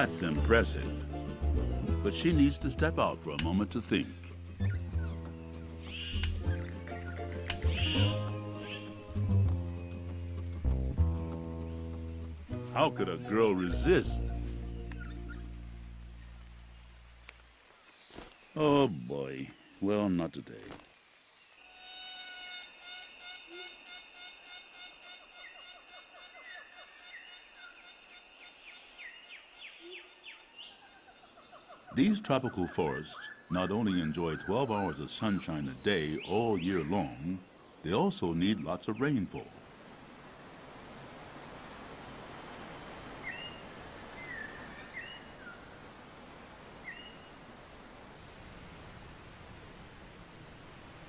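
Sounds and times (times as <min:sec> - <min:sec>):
birds calling: 0:00.0 - 0:20.8, 0:22.0 - 0:40.8, 0:42.0 - 0:45.8
steady high hum: 0:00.0 - 0:25.6, 0:34.8 - 0:51.0
rain falling on forest: 0:39.4 - 0:51.0.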